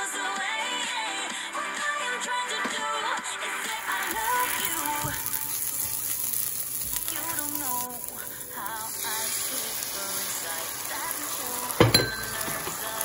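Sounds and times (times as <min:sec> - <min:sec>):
background music: 0:00.0 - 0:13.0
food sizzling in a pan: 0:03.4 - 0:13.0.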